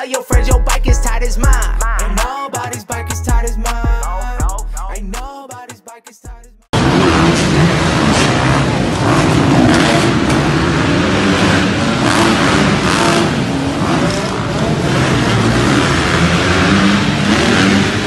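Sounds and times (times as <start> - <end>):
dirt bike engines revving: 6.8 - 18.0.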